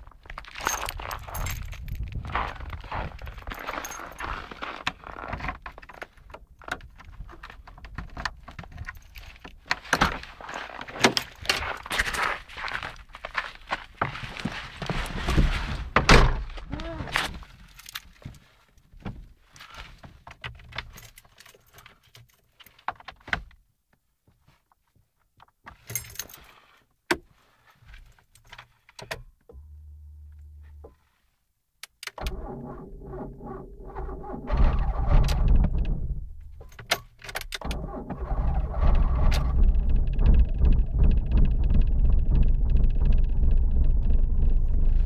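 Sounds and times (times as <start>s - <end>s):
keys and ignition switch rattling: 0.6s - 2.1s
low hum: 29.5s - 31.0s, 32.2s - 36.8s, 37.6s - 45.0s
car engine starting and running: 32.2s - 36.7s, 37.6s - 45.0s.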